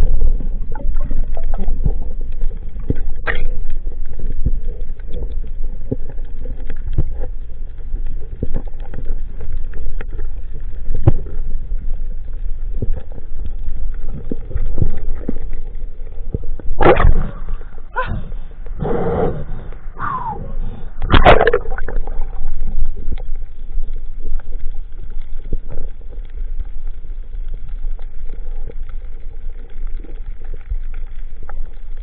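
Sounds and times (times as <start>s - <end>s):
underwater clicks and knocks: 0.0s - 11.6s, 13.9s - 17.4s, 21.0s - 23.3s
underwater rumble of moving water: 0.0s - 32.0s.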